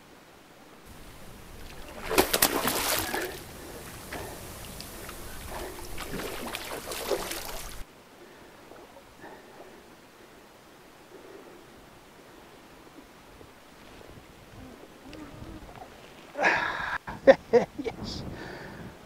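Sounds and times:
fish thrashing and splashing: 0:00.9 - 0:07.8.

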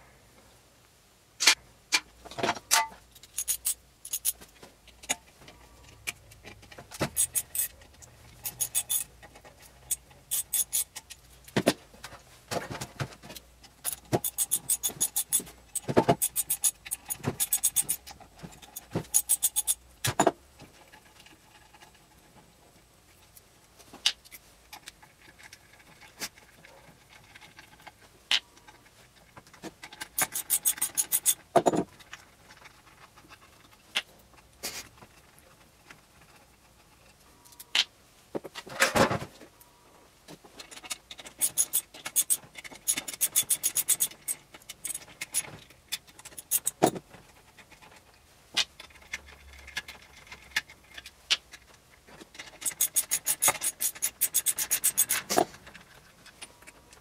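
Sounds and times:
metal clicks and clatter: 0:01.4 - 0:22.4, 0:24.0 - 0:37.9, 0:40.6 - 0:57.0
rapid evenly spaced clicks: 0:52.6 - 0:55.3.

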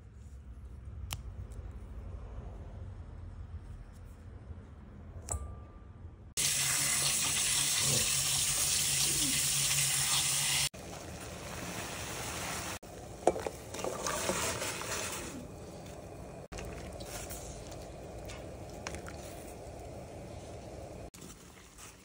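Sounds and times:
water at a rolling boil: 0:06.4 - 0:22.0.

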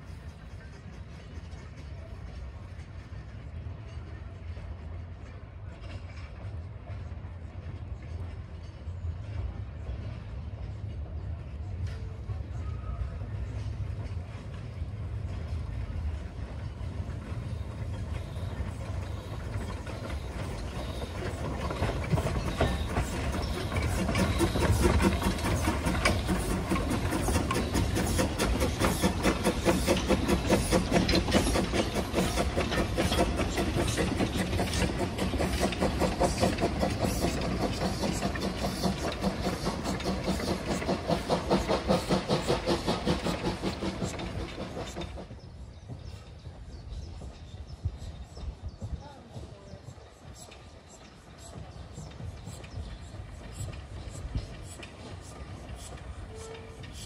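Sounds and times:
steam locomotive exhaust beats: 0:00.0 - 0:57.0.

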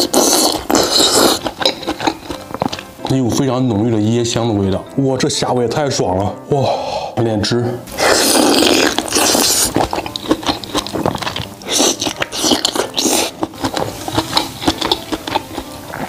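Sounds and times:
wet bite: 0:00.0 - 0:03.1, 0:07.9 - 0:16.0
open-mouthed wet chewing: 0:00.0 - 0:04.4, 0:07.9 - 0:16.0.

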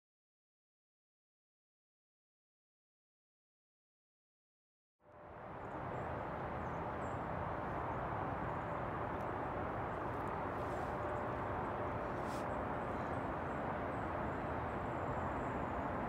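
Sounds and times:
rushing outdoor ambience: 0:05.0 - 0:16.0.

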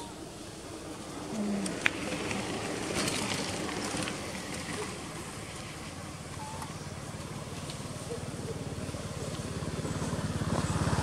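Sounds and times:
small motorbike engine idling: 0:03.0 - 0:11.0.

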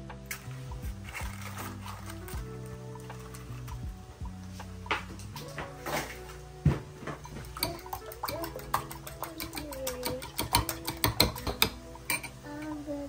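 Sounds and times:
fork clinking against glass bowl: 0:07.6 - 0:12.4.

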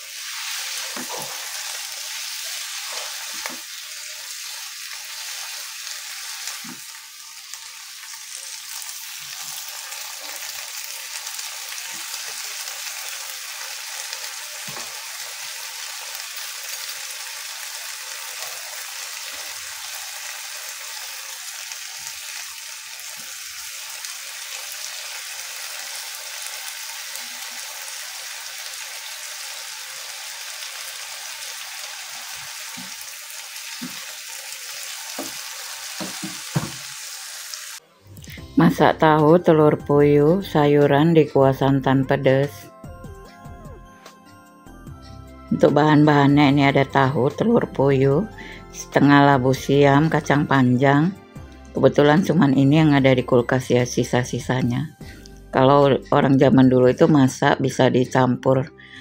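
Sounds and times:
vegetables sizzling in a wok: 0:00.0 - 0:38.5
spatula knocking against pan: 0:36.0 - 0:36.8.

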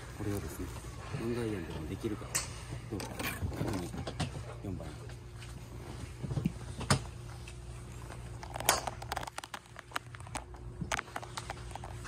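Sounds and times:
steady low hum: 0:00.0 - 0:12.0
golf clubs striking balls: 0:02.0 - 0:04.6, 0:08.4 - 0:12.0.

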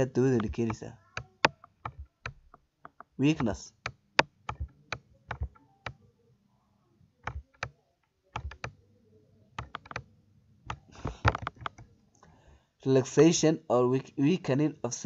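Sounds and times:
computer mouse clicks: 0:00.4 - 0:06.0, 0:07.2 - 0:08.8, 0:09.6 - 0:10.1, 0:10.7 - 0:11.9.

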